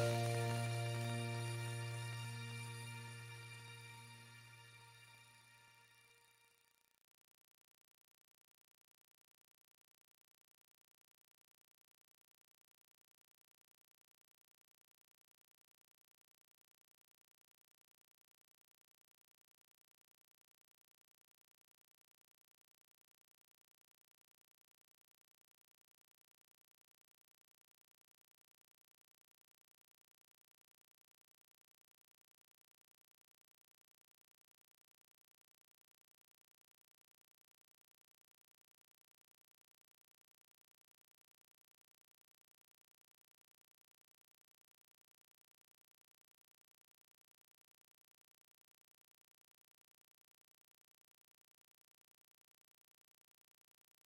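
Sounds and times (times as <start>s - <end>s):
faint steady hiss: 0.0s - 5.2s
background music: 0.0s - 5.4s.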